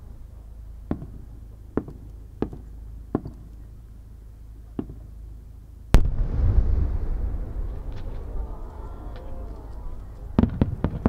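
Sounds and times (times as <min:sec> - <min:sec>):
distant firework pops: 0:00.9 - 0:01.2, 0:01.8 - 0:03.5, 0:04.7 - 0:05.1, 0:09.1 - 0:11.0
loud deep firework boom: 0:05.9 - 0:11.0
low rumbling echo: 0:05.9 - 0:11.0.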